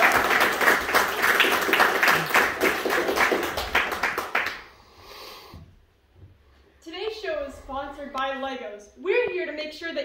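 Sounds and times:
audience applause: 0.0 - 4.7.

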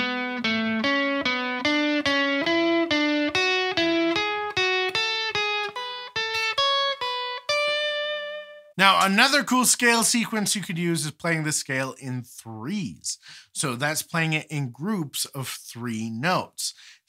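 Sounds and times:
electric guitar playing a scale: 0.0 - 8.8.

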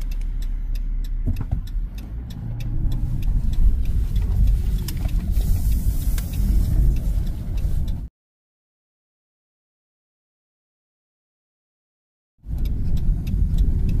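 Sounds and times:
turn signal clicking: 0.0 - 8.1, 12.4 - 14.0
van engine and road noise: 0.0 - 8.1, 12.4 - 14.0.

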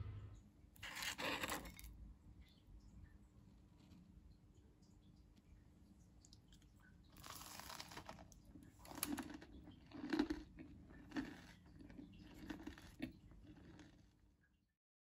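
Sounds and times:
biscuit crackling as broken apart: 7.2 - 9.5.

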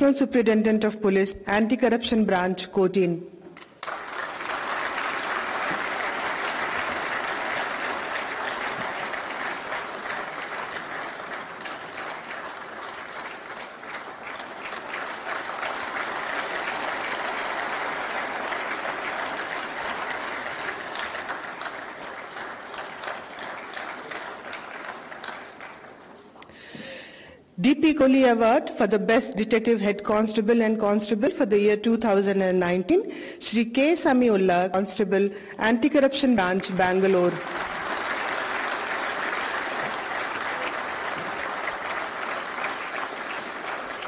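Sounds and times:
audience applauding: 3.6 - 26.4, 36.8 - 44.0.

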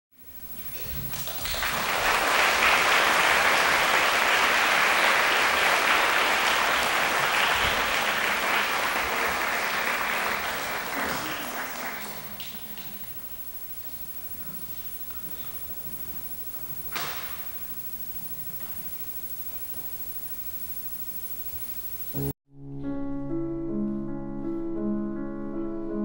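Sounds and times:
audience applauding: 0.5 - 19.5.

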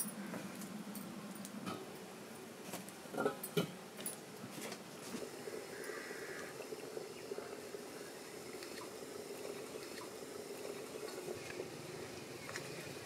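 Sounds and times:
water boiling in metal pot: 5.0 - 13.0.

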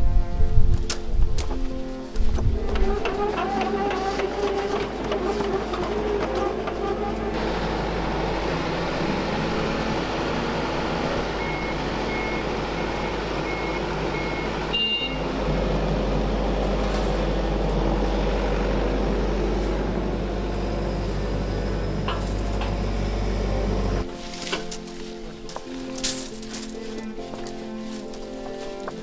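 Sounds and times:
excavator engine running: 0.0 - 29.0
warning alarm beeping: 10.5 - 15.3.

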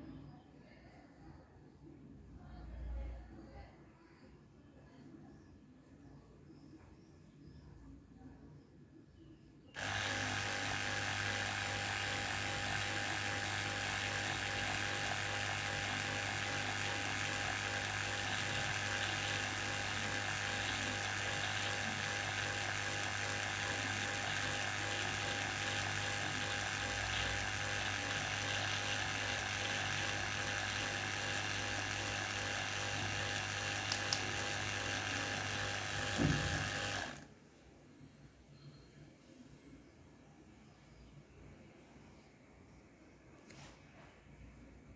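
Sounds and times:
electric water pump motor hum: 9.8 - 37.3.

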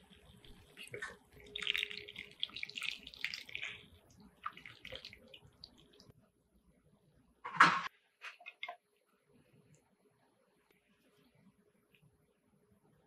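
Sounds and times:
gravy splashing and trickling: 0.0 - 6.1.

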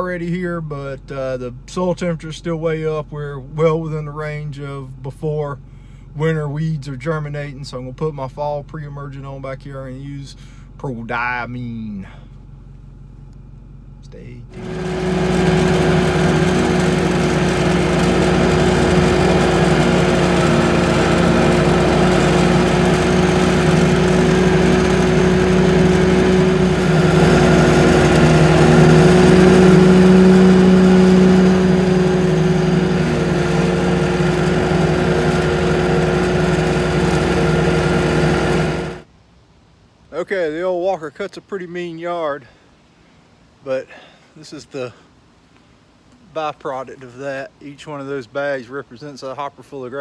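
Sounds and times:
riding lawn mower running: 14.5 - 39.1.

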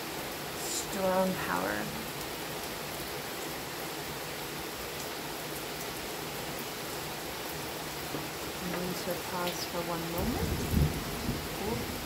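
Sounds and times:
steady rain hiss: 0.0 - 12.0.

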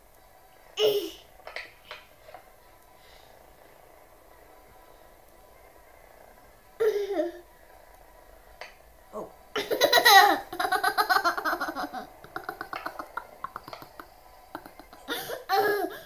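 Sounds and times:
toddler laughing: 9.6 - 16.0.

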